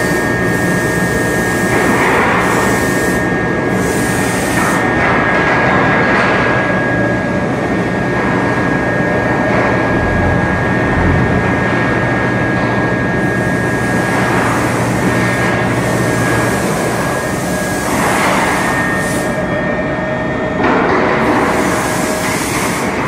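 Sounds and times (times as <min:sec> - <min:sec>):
high whine: 0:00.0 - 0:23.0
low hum: 0:06.7 - 0:13.3
machinery din: 0:09.2 - 0:15.7.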